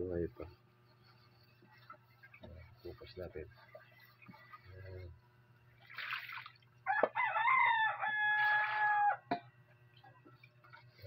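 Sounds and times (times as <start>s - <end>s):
rooster crowing: 6.8s - 9.3s.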